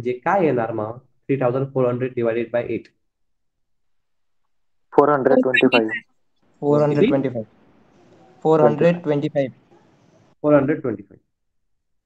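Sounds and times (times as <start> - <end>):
man speaking: 4.9 - 6.0, 6.6 - 7.5.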